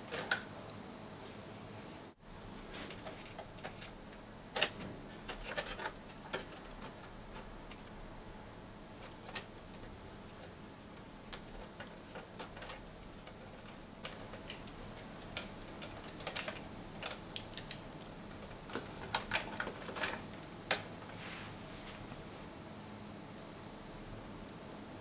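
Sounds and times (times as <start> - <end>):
plastic parts clicking: 2.9 - 7.9, 11.3 - 20.9.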